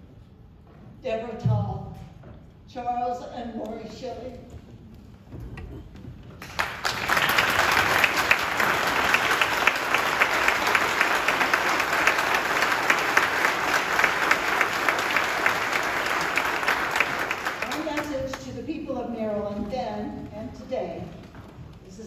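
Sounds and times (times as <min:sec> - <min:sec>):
audience applauding: 0:06.4 - 0:18.4.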